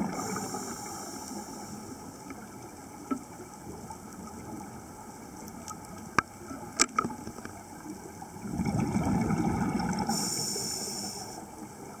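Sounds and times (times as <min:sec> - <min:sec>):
regulator bubbles underwater: 0:00.0 - 0:12.0
high hiss: 0:00.1 - 0:02.0, 0:10.1 - 0:11.5.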